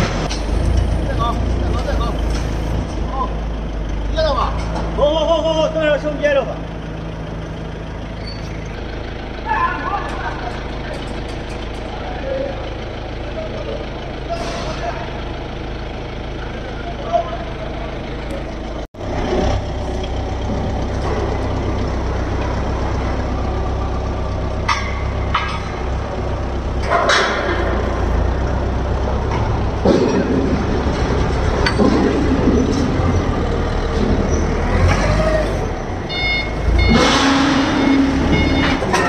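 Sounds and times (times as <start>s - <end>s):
forklift engine running: 0.0s - 39.0s
metal knocks and clatters: 10.0s - 12.0s, 24.6s - 28.4s, 29.1s - 35.0s
reversing alarm beeps: 36.1s - 39.0s.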